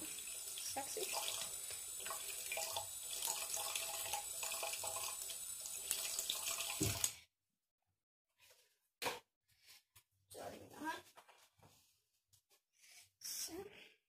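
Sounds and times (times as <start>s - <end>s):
tap water running into sink: 0.0s - 7.2s.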